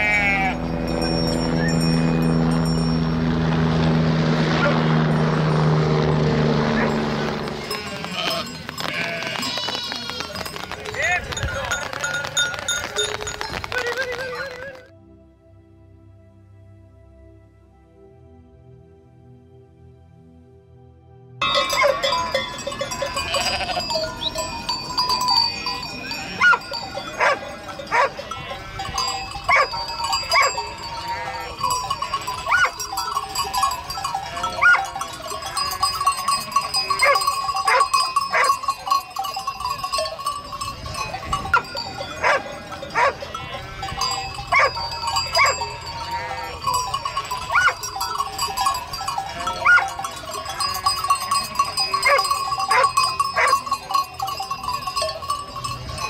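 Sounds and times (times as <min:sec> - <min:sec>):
sheep bleating: 0:00.0 - 0:00.7, 0:07.5 - 0:10.8, 0:22.8 - 0:24.2, 0:25.4 - 0:32.8, 0:33.8 - 0:35.0, 0:42.0 - 0:47.8, 0:48.6 - 0:50.8.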